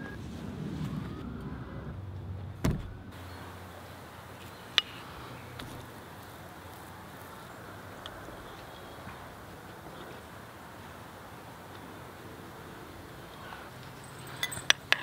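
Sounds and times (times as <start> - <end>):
dull thump: 2.6 - 3.0
metal spoon clinking ceramic bowl: 14.2 - 15.0.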